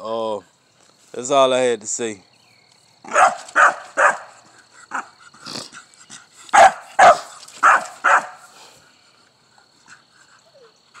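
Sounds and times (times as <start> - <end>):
dog barking: 3.1 - 5.1, 6.5 - 8.4.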